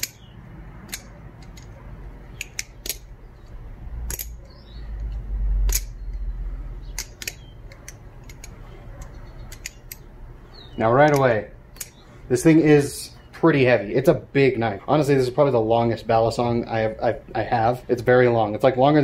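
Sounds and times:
balisong handles clicking: 0.0 - 12.4.

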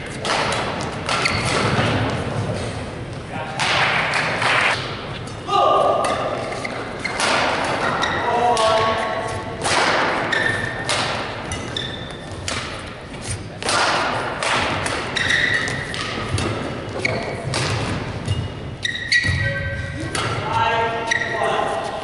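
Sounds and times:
shoes squeaking on court: 0.0 - 1.8, 6.3 - 9.5, 10.2 - 13.6, 15.0 - 22.0
racket hitting shuttlecock: 0.0 - 2.2, 3.6 - 20.4.

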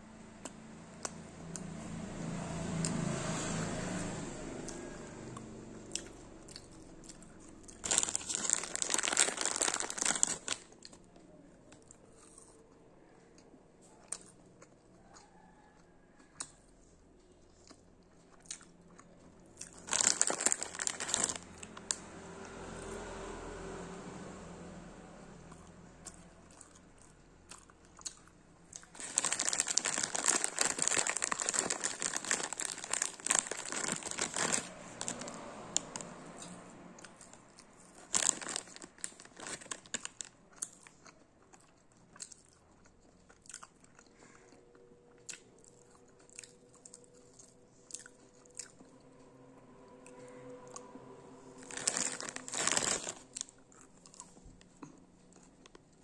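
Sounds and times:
crunchy sweets being chewed: 0.4 - 23.2, 25.4 - 56.0
plastic bag crinkling: 7.7 - 10.9, 19.7 - 21.9, 28.9 - 36.0, 37.3 - 40.3, 51.6 - 54.6.

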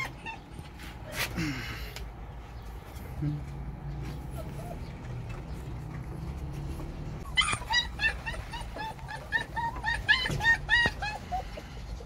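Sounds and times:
puppy whimpering: 0.0 - 1.2, 3.4 - 5.7, 6.9 - 12.0.

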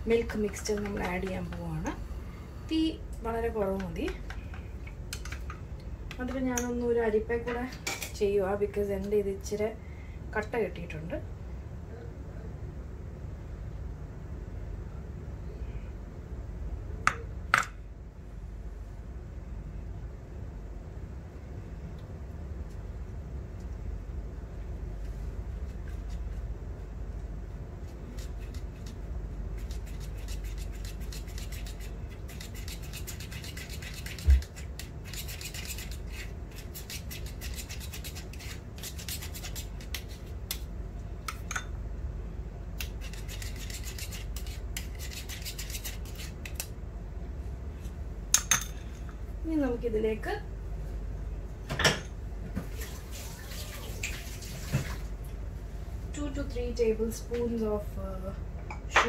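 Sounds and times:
spoon scraping a mesh strainer: 29.6 - 40.2, 42.8 - 46.6.

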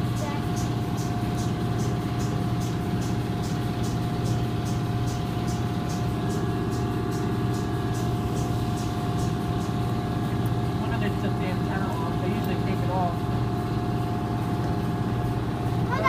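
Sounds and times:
car wash machinery hum and whine: 0.0 - 16.0.

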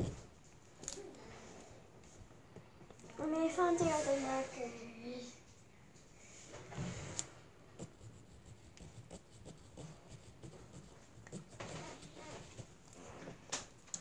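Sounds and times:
marker scratching on plastic bottle: 7.2 - 13.3.

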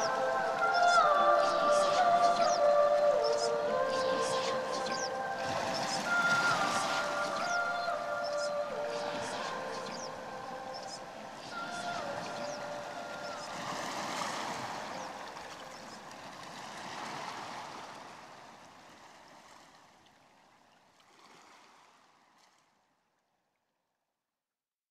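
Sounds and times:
long held high notes: 0.0 - 15.9
sea waves washing in: 0.0 - 20.0, 21.1 - 22.2.

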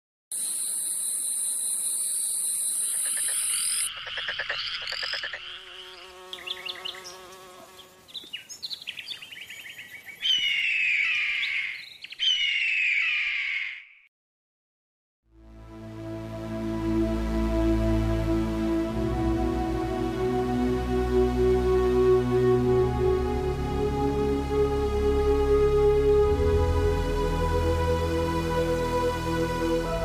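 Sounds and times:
high insect buzz: 0.4 - 9.8
rapid trilling chirps: 0.4 - 13.6.

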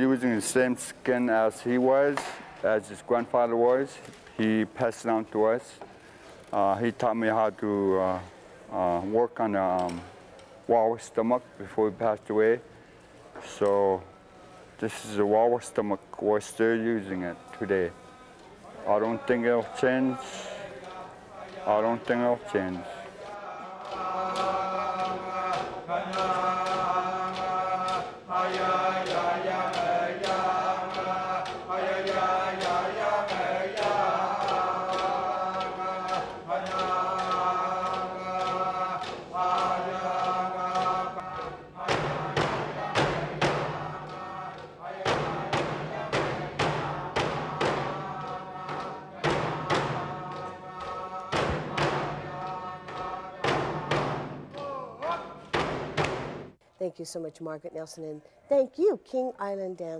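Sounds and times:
group singing: 16.6 - 56.4
voices chanting in unison: 16.7 - 55.7
frame drums beating: 23.8 - 56.6.

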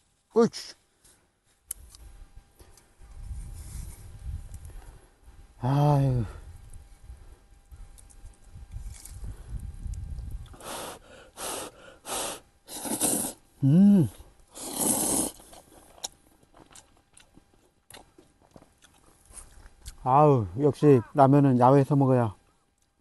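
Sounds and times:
person slurping noodles: 12.7 - 13.4, 14.5 - 15.6
person humming: 12.7 - 14.2
faint chewing clicks: 15.3 - 20.0.

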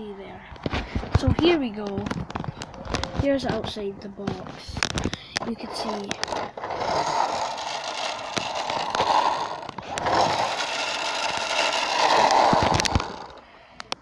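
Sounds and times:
plastic toy rubbing on carpet: 5.5 - 13.4.

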